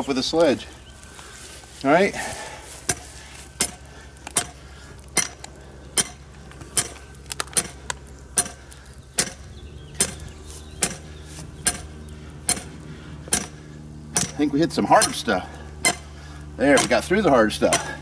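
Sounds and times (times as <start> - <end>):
sledgehammer striking metal rod: 3.6 - 3.8, 4.4 - 4.6, 5.2 - 5.4, 6.0 - 6.2, 8.4 - 8.6, 9.2 - 9.4, 10.8 - 11.0, 11.6 - 11.9, 12.5 - 12.7, 13.3 - 18.0.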